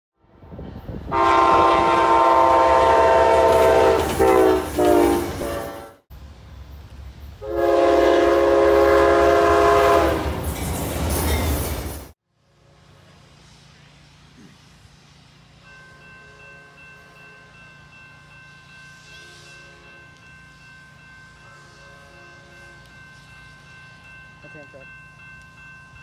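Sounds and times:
locomotive air horn: 1.1s - 6.0s, 7.4s - 10.4s.

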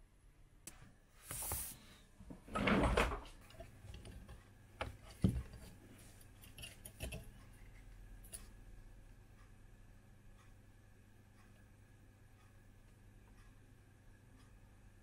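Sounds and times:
light clicks and knocks: 2.9s - 8.6s.

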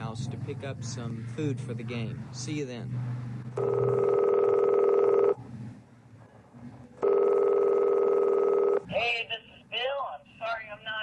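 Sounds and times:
telephone ringing: 3.6s - 5.4s, 7.0s - 8.8s.

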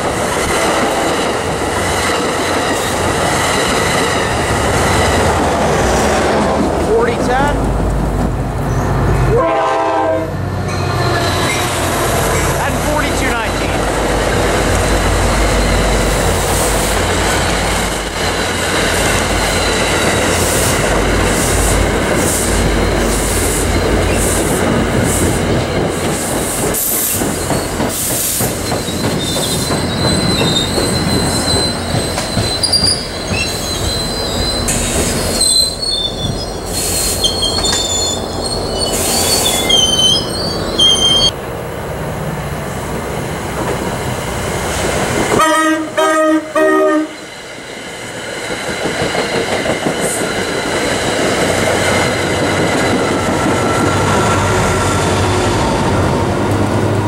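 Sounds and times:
train wheels rumbling on rail: 0.0s - 57.0s
train horn pulses: 9.3s - 10.9s, 45.4s - 47.2s
high thin wheel squeals: 28.6s - 41.3s.

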